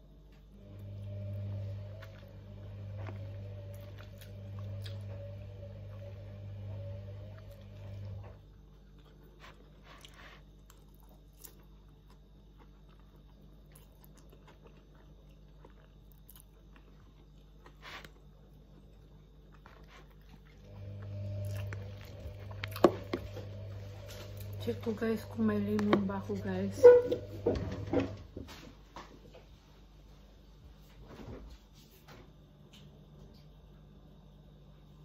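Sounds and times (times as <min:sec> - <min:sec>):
low steady hum: 0:00.0 - 0:35.0
chewing noodles: 0:01.5 - 0:06.2, 0:07.3 - 0:24.8.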